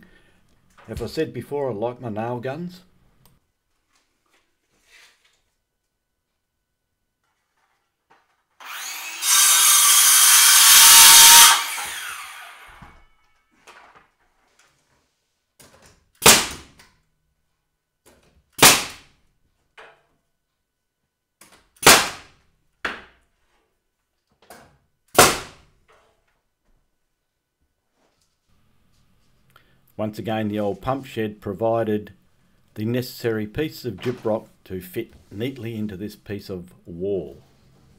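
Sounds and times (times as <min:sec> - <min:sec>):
power saw cutting timber: 0:08.6 - 0:13.0
nail gun shots: 0:16.2 - 0:16.8, 0:18.6 - 0:19.1, 0:21.8 - 0:22.4, 0:25.1 - 0:25.6.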